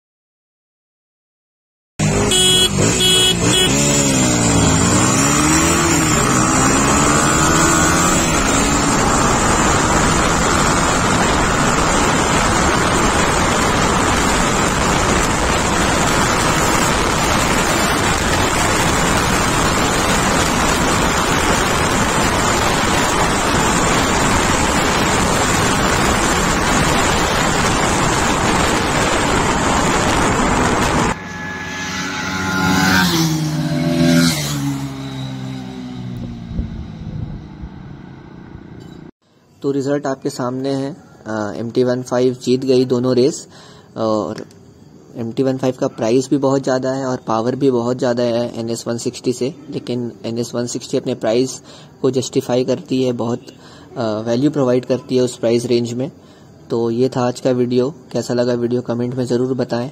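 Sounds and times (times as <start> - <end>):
motorcycle engine accelerating: 2.0 - 39.1
wind rushing over microphone: 4.7 - 31.2, 36.3 - 37.9.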